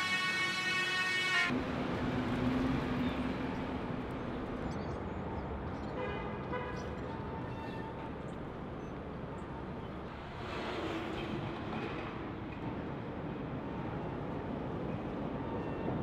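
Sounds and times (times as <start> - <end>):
vehicle horn: 0.0 - 1.5
city street traffic: 0.0 - 16.0.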